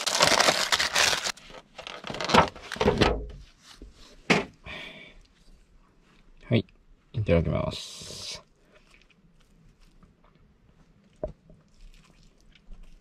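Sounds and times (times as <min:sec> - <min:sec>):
handling knocks and thuds: 0:02.3 - 0:03.4.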